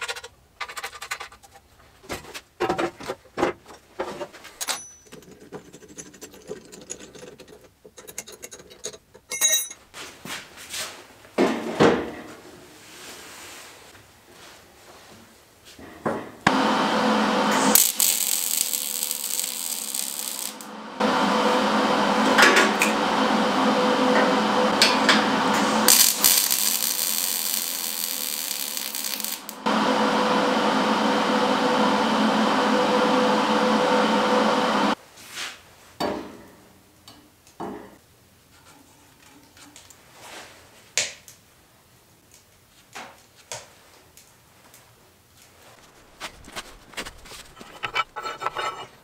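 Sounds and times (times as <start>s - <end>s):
welding arc buzzing: 16.5s - 35.0s.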